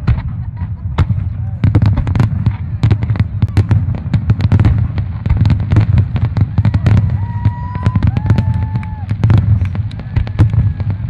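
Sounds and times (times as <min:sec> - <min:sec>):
fireworks bursting with sharp bangs: 0:00.0 - 0:11.0.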